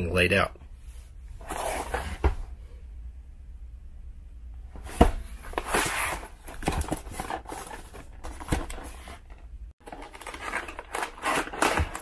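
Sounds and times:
cardboard scraping and rustling: 1.4s - 2.4s, 4.8s - 12.0s.

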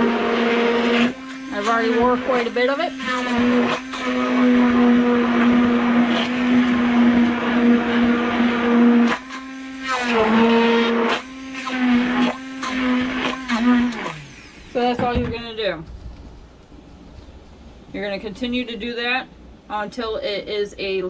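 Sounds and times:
immersion blender running: 0.0s - 15.0s.

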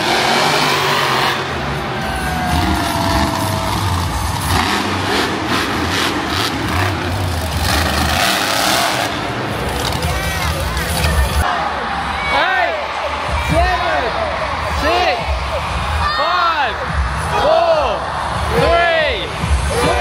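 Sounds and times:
monster truck engines running: 0.0s - 11.5s.

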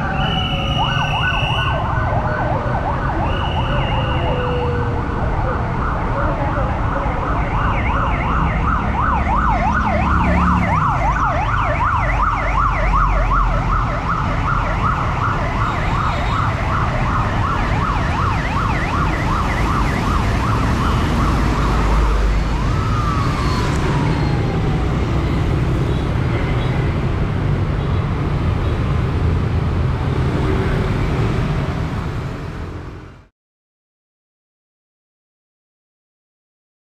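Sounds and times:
warbling siren: 0.0s - 26.0s
road traffic: 0.0s - 33.3s.

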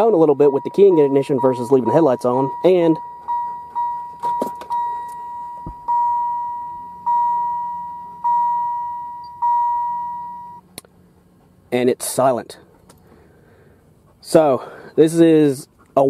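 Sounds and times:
electronic door chime dinging: 0.0s - 10.6s.

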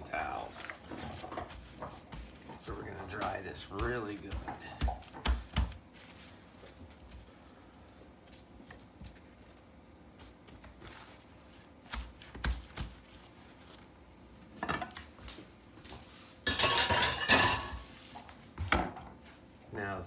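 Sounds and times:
soft patting on paper towels: 0.2s - 16.3s
dishes clattering: 16.4s - 17.9s.

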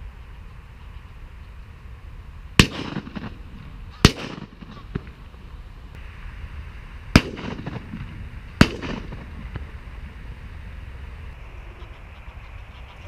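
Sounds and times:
steady outdoor hiss: 0.0s - 13.0s
shotgun shots: 2.6s - 5.2s, 7.1s - 9.6s.

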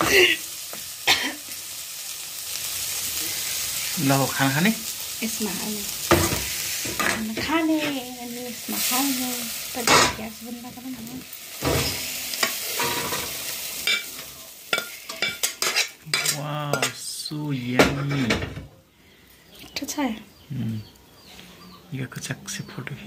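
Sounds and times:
fish sizzling in a wok: 0.0s - 18.5s
metal spoon clinking on metal: 13.8s - 17.0s.

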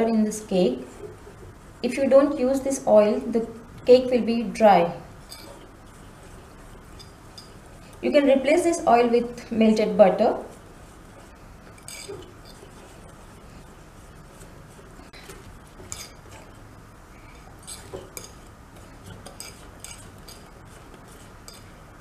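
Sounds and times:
whisk beating batter: 5.1s - 8.7s, 10.3s - 22.0s
whisk clinking against glass: 6.9s - 7.6s, 11.8s - 12.6s, 15.8s - 16.5s, 17.3s - 21.8s.

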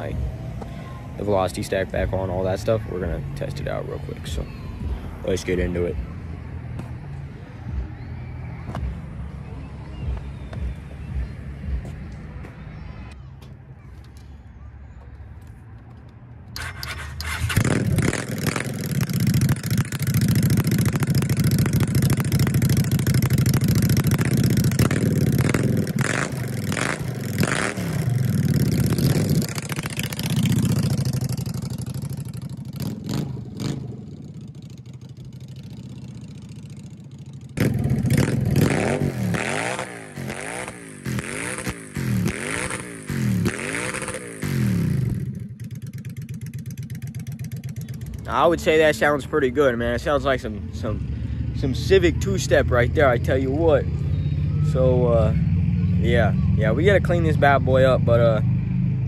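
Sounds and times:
motorcycle engine idling: 16.6s - 51.7s
motorcycle engine revving: 16.6s - 59.0s.

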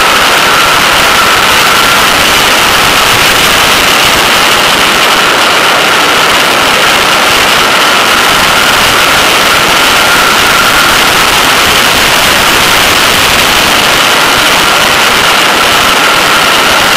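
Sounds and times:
wind rush over microphone: 0.0s - 16.9s.

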